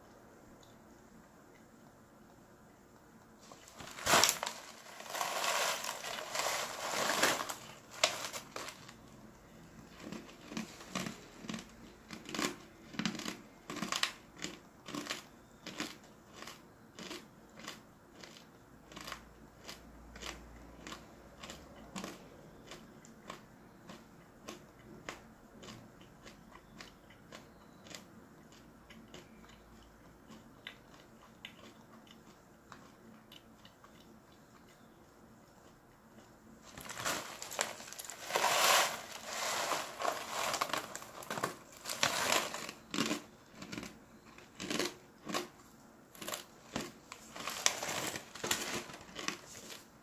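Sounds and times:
crunching dried mushroom slices: 3.4s - 9.2s, 9.9s - 23.4s, 36.2s - 49.9s.

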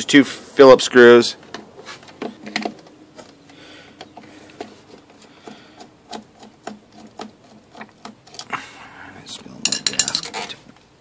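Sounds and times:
tool scraping against metal: 9.6s - 10.6s.

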